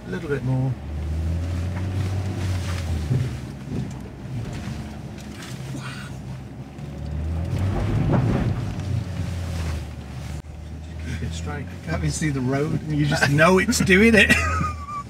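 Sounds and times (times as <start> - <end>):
vehicle engine at low revs: 0.0 - 15.0
vehicle body knocks and rattles: 2.9 - 5.6, 6.4 - 10.1.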